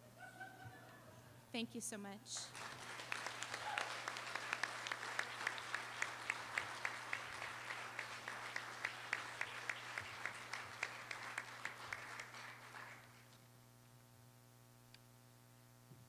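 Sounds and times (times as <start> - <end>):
nearby person clapping: 2.4 - 13.2
audience applauding: 2.4 - 13.3.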